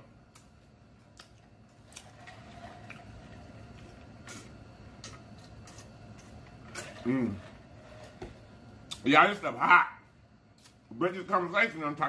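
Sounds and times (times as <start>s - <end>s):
man chewing: 0.3s - 7.2s.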